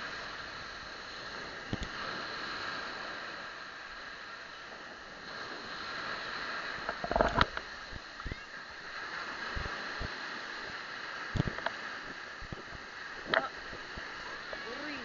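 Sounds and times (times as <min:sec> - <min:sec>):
steady hiss: 0:00.0 - 0:15.0
phone case knocks and rubbing: 0:06.9 - 0:07.5.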